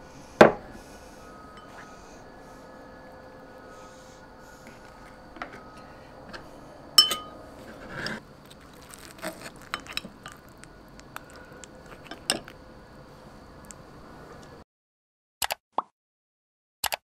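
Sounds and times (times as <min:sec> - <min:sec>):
spoon clinking on ceramic dishes: 0:07.0 - 0:07.4, 0:09.6 - 0:10.4.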